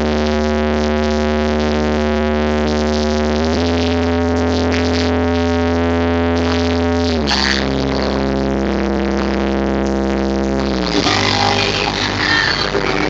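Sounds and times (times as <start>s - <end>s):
electronic dance music: 10.6s - 13.0s.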